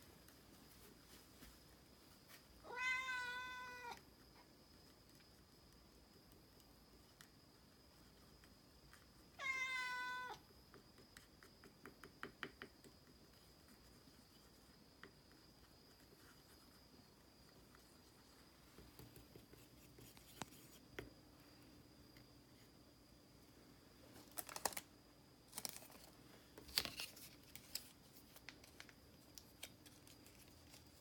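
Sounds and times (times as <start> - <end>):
cat meowing: 2.6 - 4.0, 9.4 - 10.4.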